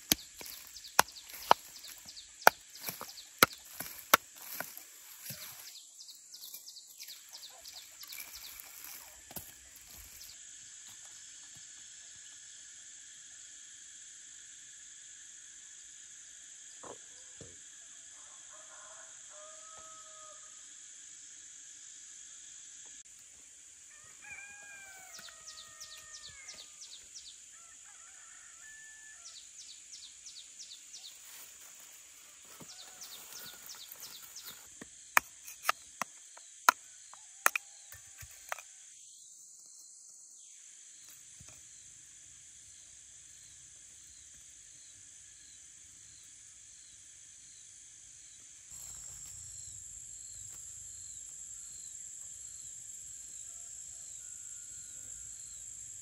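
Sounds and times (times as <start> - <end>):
bird calls and trilling chirps: 0.0 - 10.4
high insect buzz: 0.0 - 56.0.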